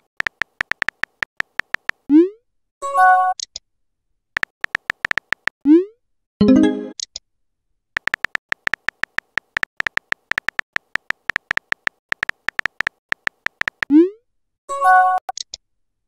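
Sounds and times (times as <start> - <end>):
phone keyboard key clicks: 0.1 - 2.0, 4.4 - 5.6, 8.0 - 13.9
incoming message tone: 6.4 - 7.0.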